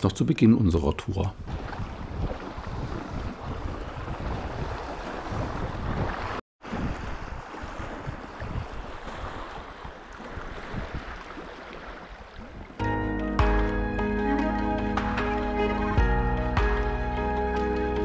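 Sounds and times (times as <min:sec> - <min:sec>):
wind buffeting microphone: 0:01.3 - 0:12.8.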